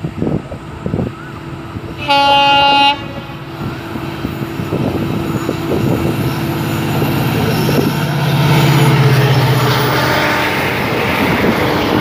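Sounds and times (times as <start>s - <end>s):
locomotive engine drone: 0.0s - 12.0s
train wheels clattering on track: 3.0s - 12.0s.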